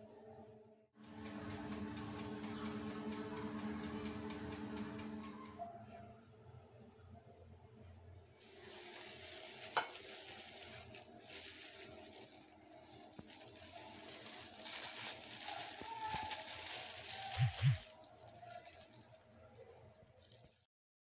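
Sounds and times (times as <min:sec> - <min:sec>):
plastic gloves crinkling: 0:08.4 - 0:20.7.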